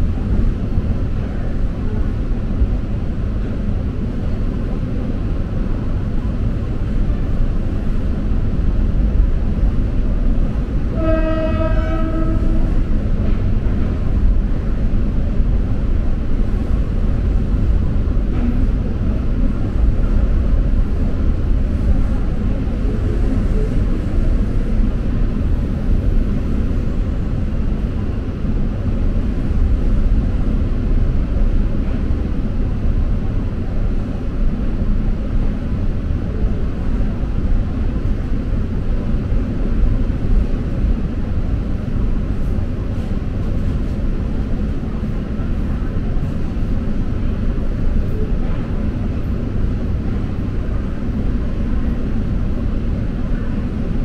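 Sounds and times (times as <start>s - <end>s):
train rumbling: 0.0s - 54.0s
train horn: 10.9s - 12.9s.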